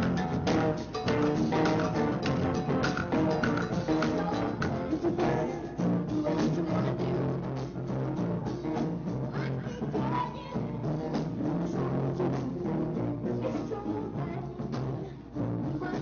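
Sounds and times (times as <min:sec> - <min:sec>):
live rock band playing: 0:00.0 - 0:09.2
drums beating: 0:00.0 - 0:13.0
person singing: 0:00.0 - 0:16.0.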